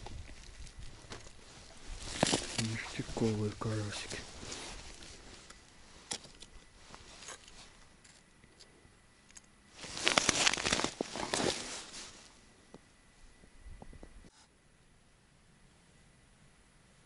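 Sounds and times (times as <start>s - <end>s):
crunching on icy snow: 0.0s - 8.2s, 9.7s - 12.4s.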